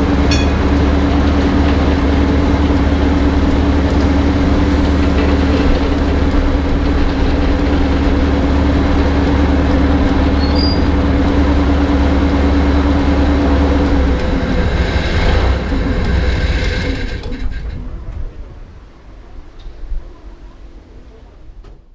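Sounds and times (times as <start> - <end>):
diesel locomotive engine idling: 0.0 - 21.9.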